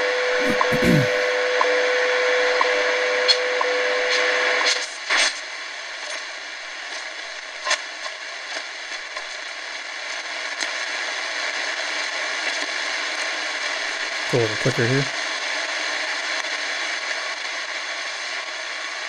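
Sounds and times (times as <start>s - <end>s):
radio static hiss: 0.0s - 1.4s, 14.1s - 15.1s
steady radio tone with ticks: 14.3s - 15.1s.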